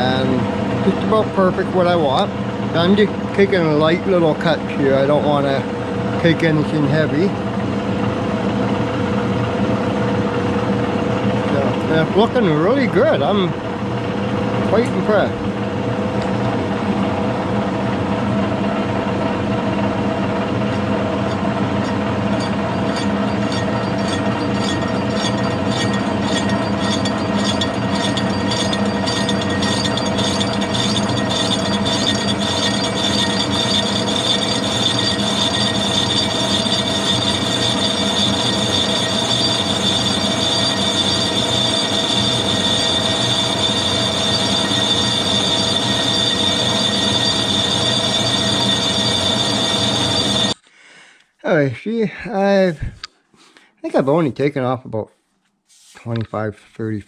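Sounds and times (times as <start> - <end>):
metal lathe humming: 0.0 - 50.6
high ringing tone: 20.7 - 50.6.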